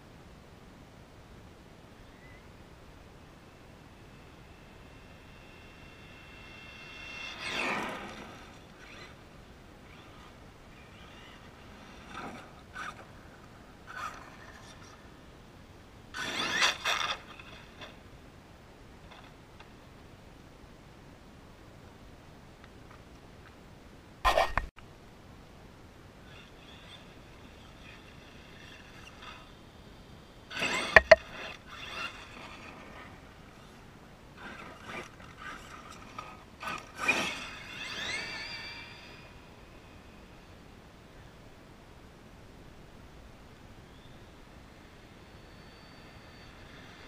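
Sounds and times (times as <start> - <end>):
rc truck motor whine: 3.4 - 15.1, 16.2 - 18.0, 26.2 - 41.3, 43.8 - 47.0.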